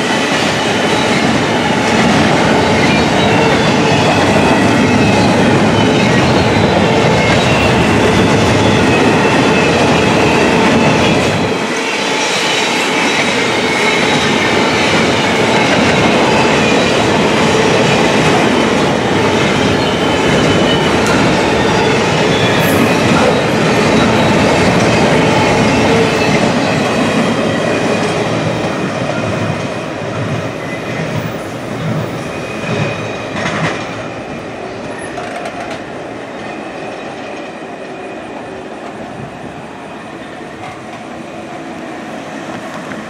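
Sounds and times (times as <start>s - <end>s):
freight train wheels clacking: 0.0s - 39.6s.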